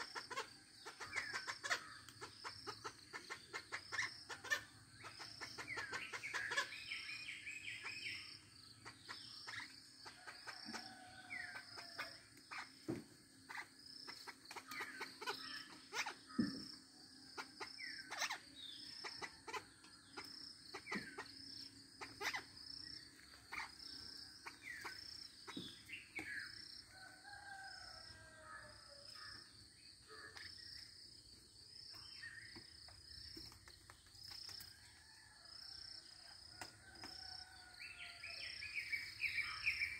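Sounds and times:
junglefowl clucking and chirping: 0.0 - 12.9, 13.5 - 21.4, 22.0 - 22.6.

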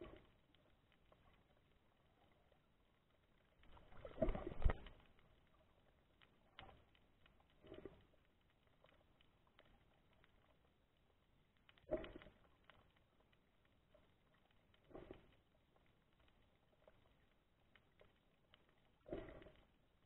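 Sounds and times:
muffled underwater rushing: 3.7 - 5.0, 19.0 - 19.6.

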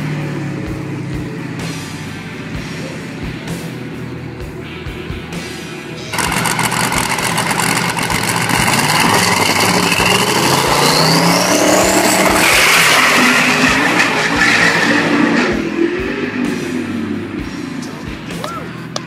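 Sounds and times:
car engine revving: 6.0 - 18.4.

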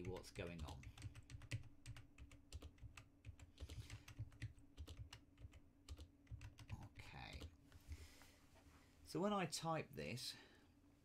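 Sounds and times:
keyboard typing: 0.0 - 7.6.

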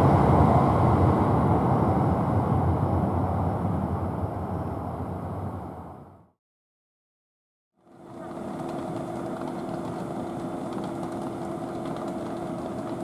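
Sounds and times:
steady mechanical hum: 7.8 - 13.0.

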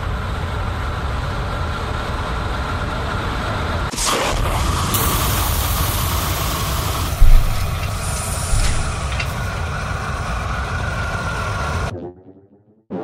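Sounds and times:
spaceship engine rumble: 7.0 - 11.9
loud impact hits: 7.1 - 9.6.

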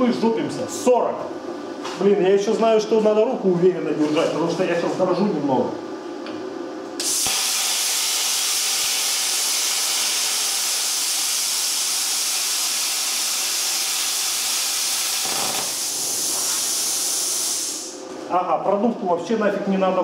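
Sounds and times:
plasma cutter hissing: 7.0 - 18.0.

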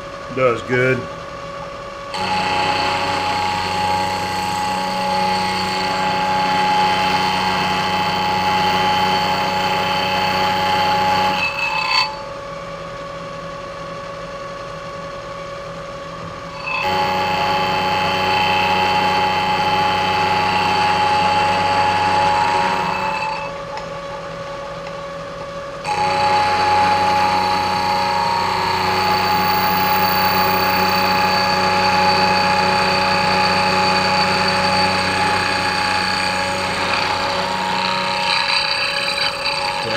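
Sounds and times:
metal cutting noise: 2.1 - 12.3, 16.5 - 23.6, 25.8 - 39.9
milling machine spindle running: 2.1 - 12.3, 16.6 - 23.6, 25.8 - 39.9.

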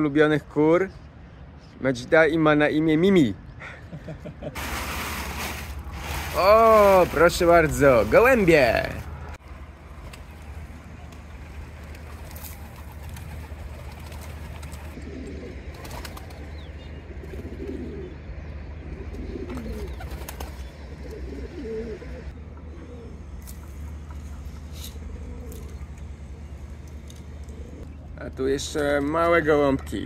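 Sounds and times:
pigeons cooing: 11.5 - 26.3, 27.2 - 27.9.

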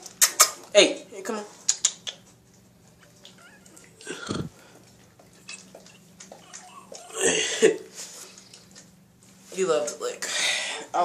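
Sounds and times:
puppies licking a hand: 1.6 - 4.0, 4.7 - 7.2, 7.8 - 9.4
puppy whimpering: 3.0 - 4.5, 6.3 - 7.2.

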